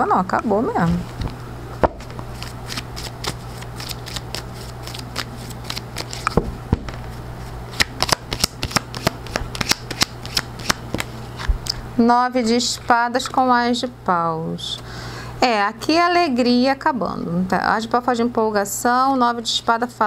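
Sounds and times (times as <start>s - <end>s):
low steady hum: 0.0s - 20.0s
cards being shuffled: 0.9s - 11.7s.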